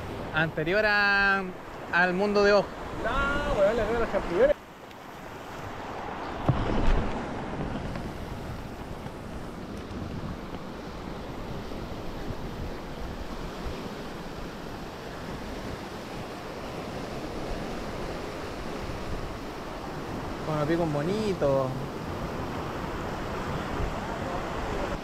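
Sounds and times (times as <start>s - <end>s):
surf washing against rocks: 0.0s - 25.0s
wind buffeting microphone: 5.3s - 20.5s.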